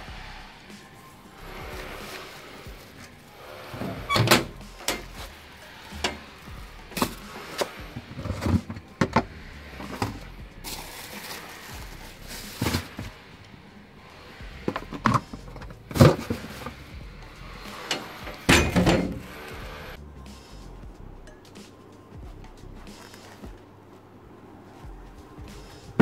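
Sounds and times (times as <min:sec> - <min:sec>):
plastic bag rustling: 0:00.8 - 0:04.1, 0:09.8 - 0:13.7
bin lid and hatch knocking: 0:17.9 - 0:19.3.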